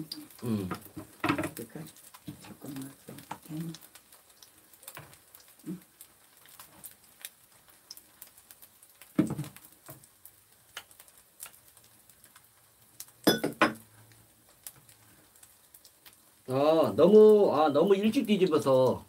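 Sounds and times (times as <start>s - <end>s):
utensils clinking against a glass bowl: 13.3s - 13.8s.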